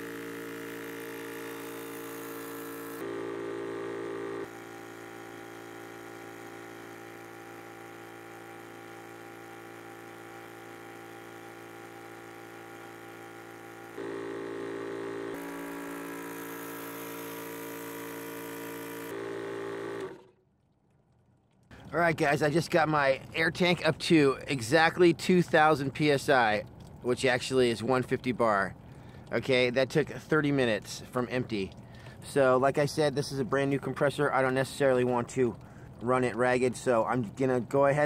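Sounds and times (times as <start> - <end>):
air compressor humming: 0.0 - 20.3.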